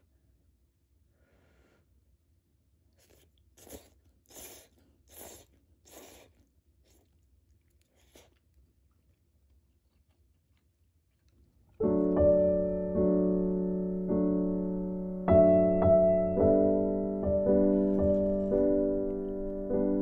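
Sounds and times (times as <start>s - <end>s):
noodles being slurped: 2.9s - 11.7s
gentle piano music: 11.8s - 20.0s.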